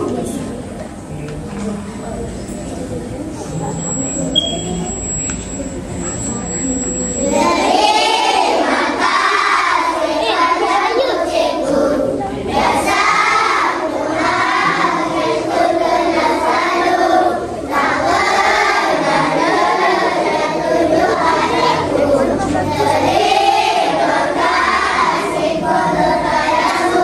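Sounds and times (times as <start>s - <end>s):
children singing in unison: 7.2s - 27.0s.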